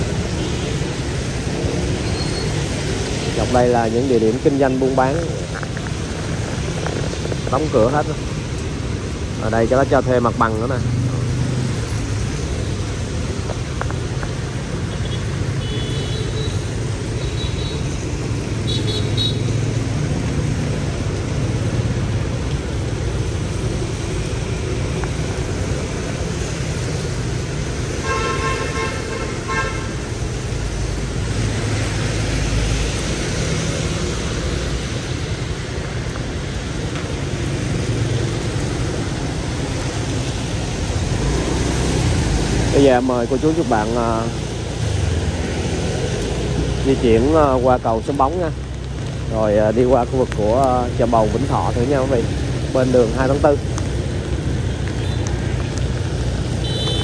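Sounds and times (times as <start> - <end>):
street traffic: 0.0 - 57.0
vehicle horn honking: 28.0 - 29.9, 56.6 - 57.0.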